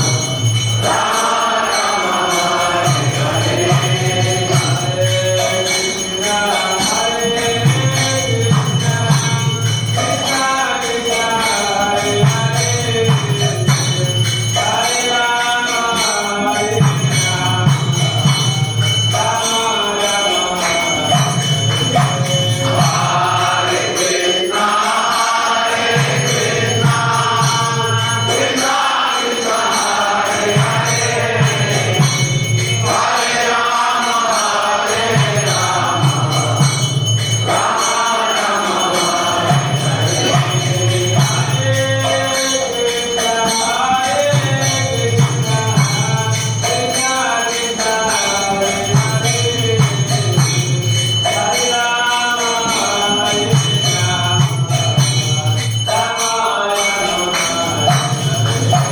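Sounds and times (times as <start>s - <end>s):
bells ringing: 0.0s - 58.9s
devotional group singing: 0.0s - 58.9s.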